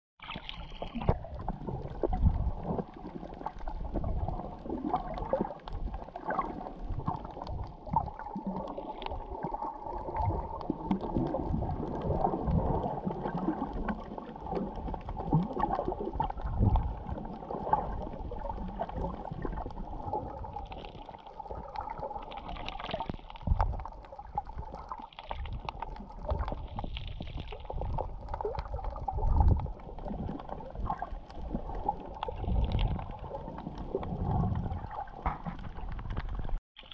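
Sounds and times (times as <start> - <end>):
underwater gurgling and sloshing: 0.2 - 36.9
low underwater thumps: 33.9 - 36.6.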